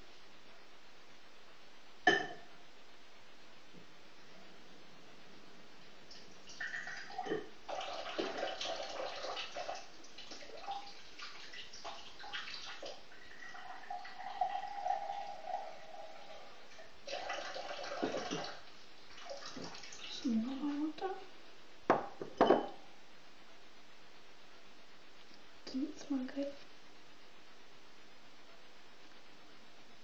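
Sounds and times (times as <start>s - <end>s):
water running from a tap: 6.1s - 20.8s.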